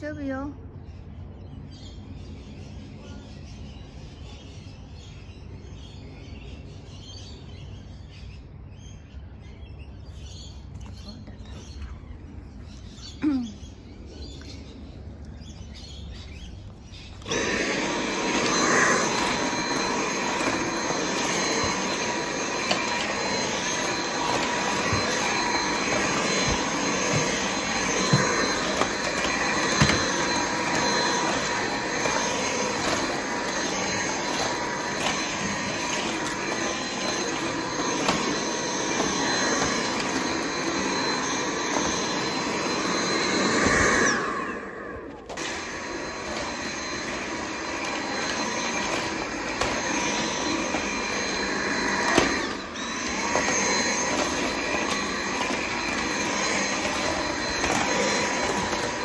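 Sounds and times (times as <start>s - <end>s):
stick vacuum cleaner running: 15.3s - 59.0s.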